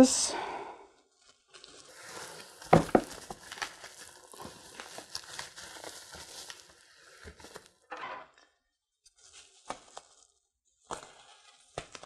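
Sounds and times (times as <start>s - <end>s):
bubble wrap crinkling: 1.1s - 7.8s, 9.1s - 12.0s.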